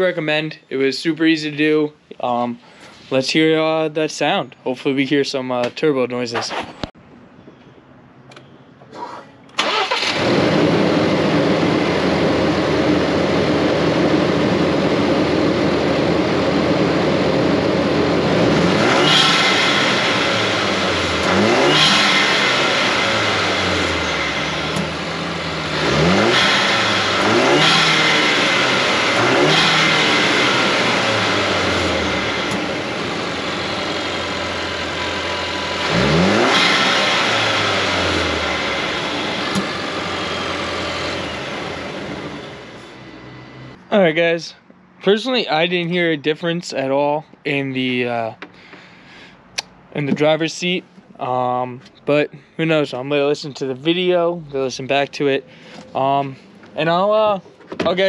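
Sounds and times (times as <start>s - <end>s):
car engine starting and idling: 8.2s - 44.4s, 47.5s - 58.0s
engine revving in throttle blips: 8.3s - 43.8s.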